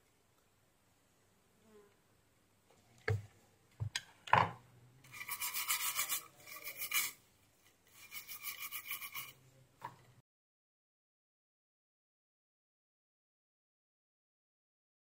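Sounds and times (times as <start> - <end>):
bristle brush scrubbing circuit board: 5.1 - 7.2, 7.9 - 9.4.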